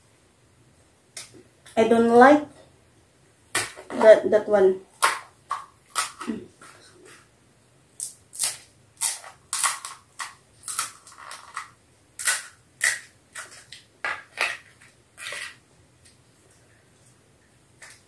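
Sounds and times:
crisp shells cracking: 0:08.0 - 0:15.6.

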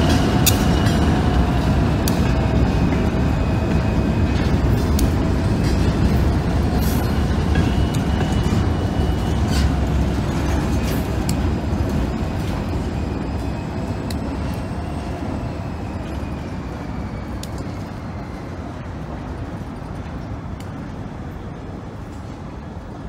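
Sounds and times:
train cars clanking: 0:00.0 - 0:17.2
freight train rumbling: 0:00.0 - 0:23.0.

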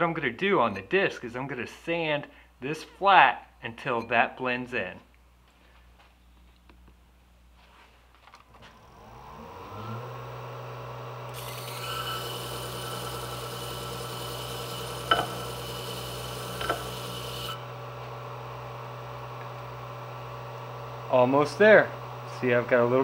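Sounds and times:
disc sander motor humming: 0:08.6 - 0:23.0
blade grinding on sanding disc: 0:10.4 - 0:17.7.

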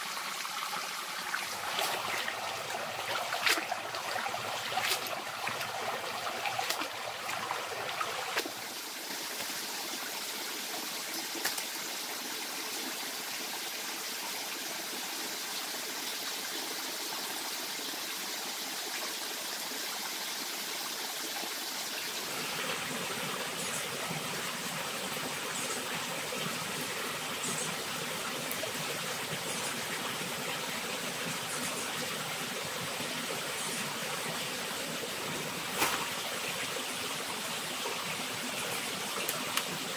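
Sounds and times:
running water rushing: 0:00.0 - 0:16.5, 0:21.2 - 0:39.9
hands splashing water in stream: 0:01.3 - 0:08.6, 0:35.3 - 0:36.7, 0:38.6 - 0:39.9.

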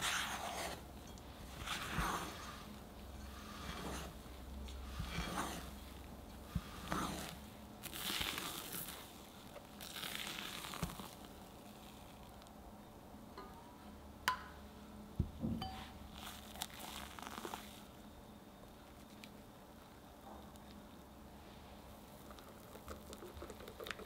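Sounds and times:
spatula swishing through batter: 0:00.0 - 0:12.2.

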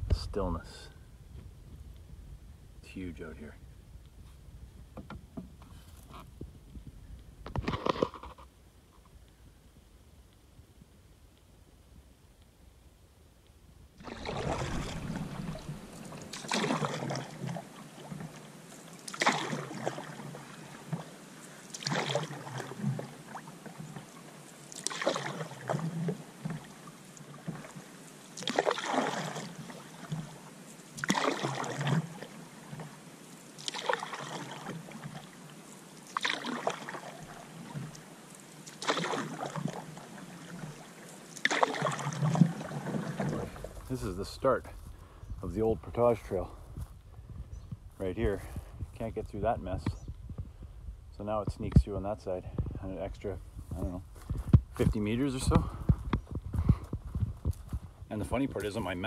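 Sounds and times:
canoe paddle swishing through water: 0:14.0 - 0:47.3.

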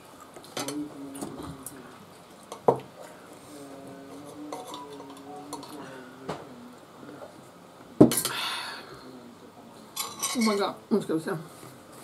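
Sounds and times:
cutlery scraping on ceramic plate: 0:10.0 - 0:10.7.

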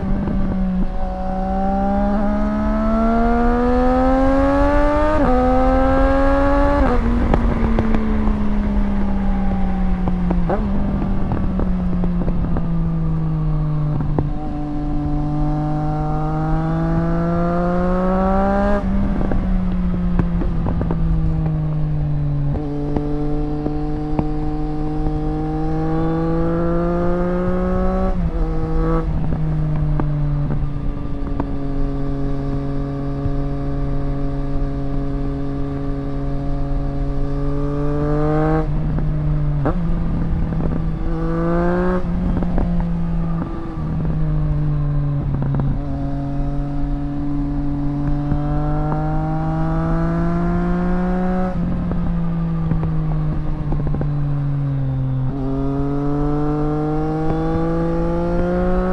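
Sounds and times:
motorcycle engine revving: 0:00.0 - 0:58.9.

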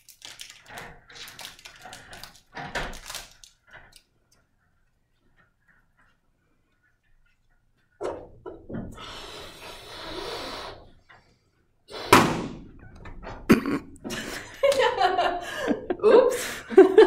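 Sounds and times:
breath blowing into balloon: 0:08.9 - 0:11.0, 0:11.9 - 0:12.6
balloon bursting pop: 0:11.9 - 0:12.7
woman laughing: 0:13.5 - 0:17.0.

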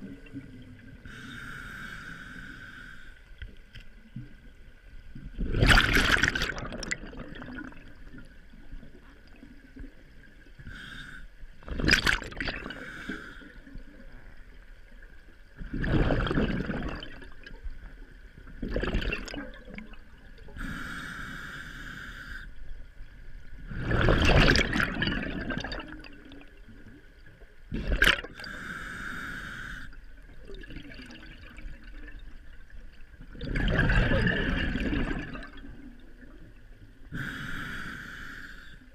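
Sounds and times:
regulator inhalation hiss: 0:01.1 - 0:03.2, 0:12.7 - 0:13.5, 0:20.6 - 0:22.6, 0:28.4 - 0:30.0, 0:37.2 - 0:38.9
bubbles gurgling underwater: 0:05.2 - 0:10.4, 0:11.6 - 0:12.9, 0:15.6 - 0:17.7, 0:18.5 - 0:20.6, 0:23.6 - 0:27.0, 0:27.7 - 0:28.5, 0:30.3 - 0:36.7.

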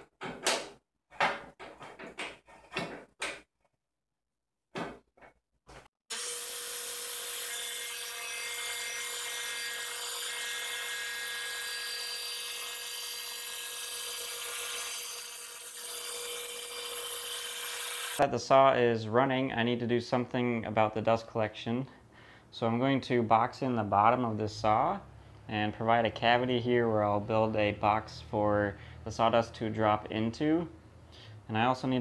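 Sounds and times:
metal clicks and knocks: 0:00.1 - 0:03.4
table saw running: 0:06.1 - 0:18.2.

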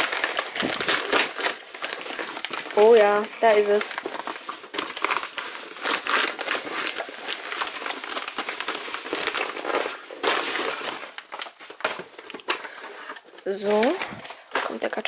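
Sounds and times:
mailing bag crinkling: 0:00.0 - 0:15.0.

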